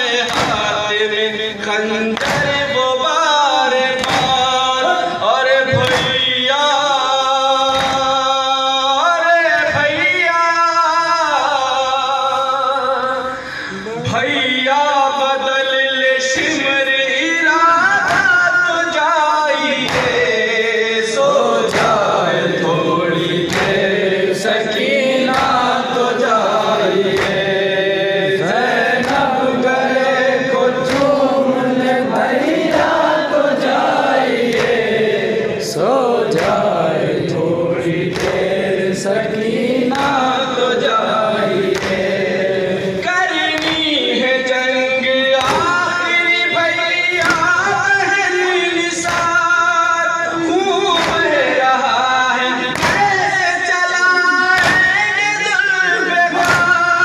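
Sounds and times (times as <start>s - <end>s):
men chanting in unison: 0.0s - 57.0s
open-handed chest slaps: 0.3s - 0.7s, 2.2s - 2.6s, 4.0s - 4.4s, 5.8s - 6.3s, 38.1s - 38.5s, 41.7s - 42.0s, 52.7s - 53.2s, 56.4s - 56.8s.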